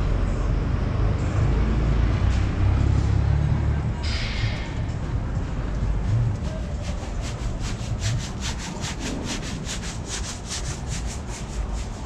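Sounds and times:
low background rumble: 0.0s - 12.0s
rhythmic rasping scraping: 4.0s - 12.0s.

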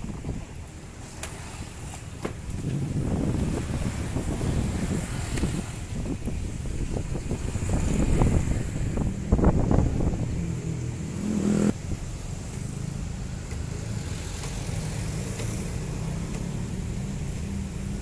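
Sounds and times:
motorcycle engine revving: 7.2s - 11.8s.

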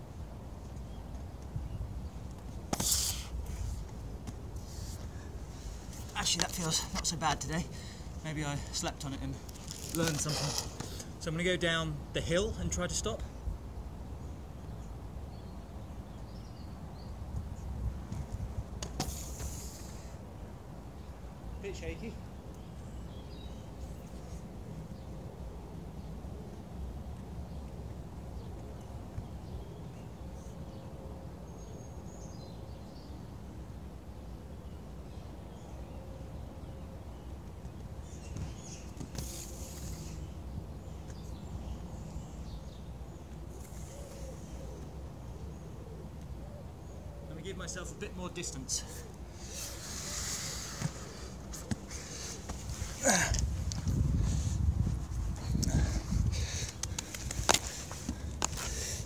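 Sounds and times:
faint birdsong: 0.0s - 59.0s
skate wheels sliding on concrete: 2.7s - 7.0s, 9.4s - 11.1s, 56.4s - 59.0s
brief hissing scrape: 2.8s - 3.3s.

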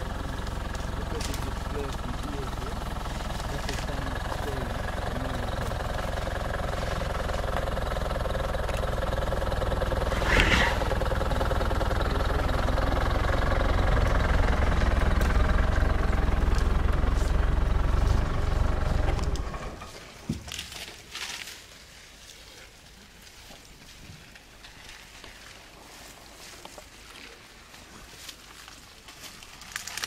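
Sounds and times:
vehicle engine idling: 0.0s - 20.2s.

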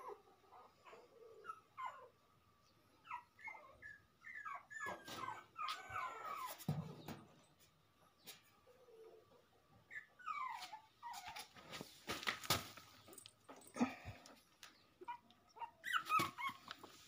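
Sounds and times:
puppy whimpering: 0.0s - 2.2s, 3.0s - 6.6s, 9.9s - 11.5s, 15.0s - 17.0s.

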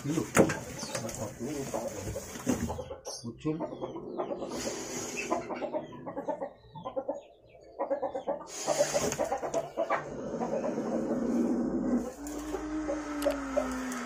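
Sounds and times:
chickens clucking: 0.0s - 14.0s.

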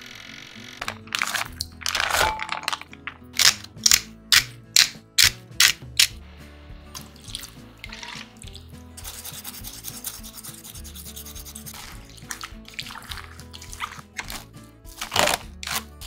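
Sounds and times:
quiet background music: 0.0s - 16.0s
sharp click: 3.4s - 6.2s
hands rubbing chicken: 7.3s - 16.0s.

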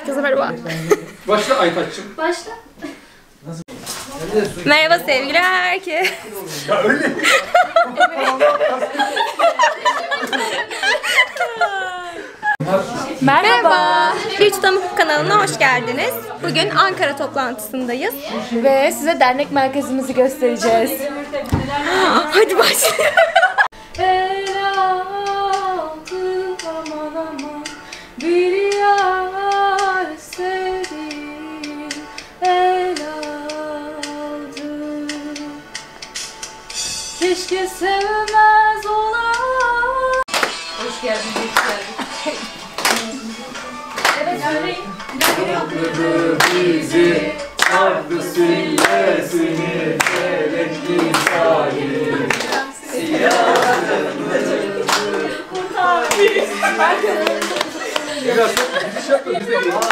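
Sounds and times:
woman singing: 23.8s - 35.8s, 37.2s - 48.9s, 55.0s - 58.2s
hand claps on the beat: 40.2s - 43.2s, 43.9s - 44.3s, 45.0s - 46.8s, 47.5s - 51.6s, 52.3s - 52.7s, 53.3s - 53.9s, 54.8s - 55.2s, 57.2s - 58.8s.

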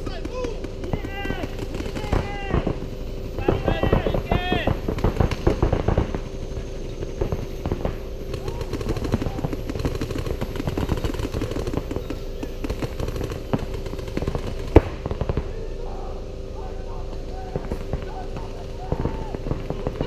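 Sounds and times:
steady hum: 0.0s - 20.0s
paintball markers firing pops: 7.0s - 15.5s.

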